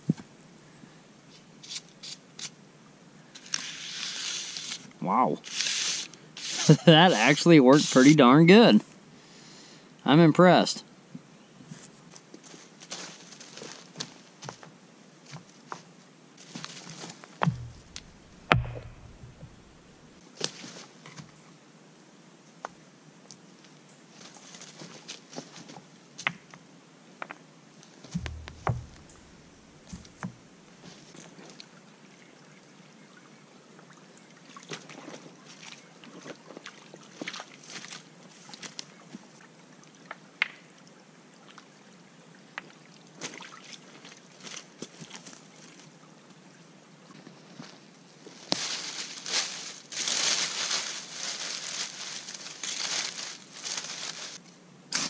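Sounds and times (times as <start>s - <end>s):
sticks and leaves rustling: 11.7s - 14.7s, 16.4s - 21.0s, 28.0s - 31.6s, 47.4s - 55.0s
stones knocking and clicking: 17.4s - 19.7s, 28.2s - 30.4s
dull thuds: 17.4s - 20.0s, 28.1s - 30.4s
creek trickling: 17.4s - 20.2s.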